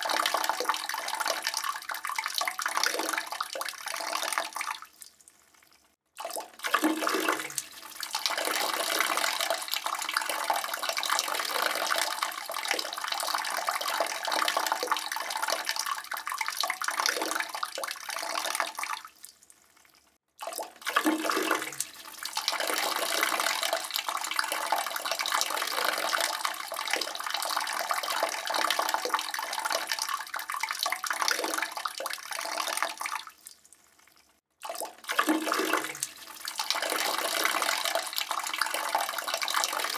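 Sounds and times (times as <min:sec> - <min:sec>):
urine stream splashing into toilet water: 0:00.0 - 0:04.8, 0:06.2 - 0:19.1, 0:20.4 - 0:33.6, 0:34.6 - 0:39.9.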